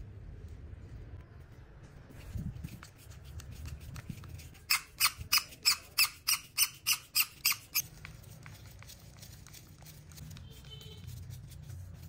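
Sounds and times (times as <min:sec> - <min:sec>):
rusted screw squeaking: 0:04.6 - 0:07.8.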